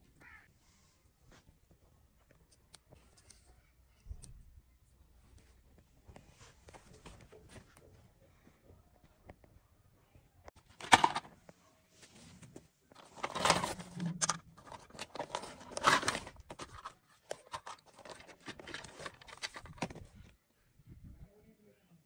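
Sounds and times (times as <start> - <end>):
plastic bag crinkling: 13.0 - 20.0.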